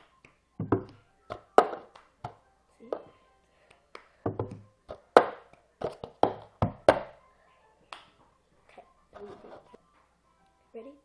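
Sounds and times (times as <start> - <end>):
hand claps: 0.0 - 2.4, 3.7 - 7.1, 7.9 - 8.2
plastic cup tapping on table: 0.6 - 2.4, 4.3 - 7.1.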